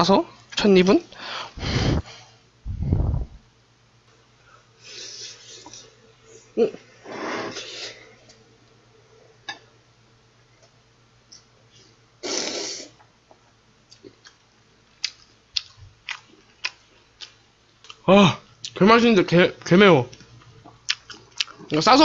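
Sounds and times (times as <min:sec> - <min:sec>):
close-up wet chewing: 0:15.0 - 0:18.0, 0:20.6 - 0:21.8.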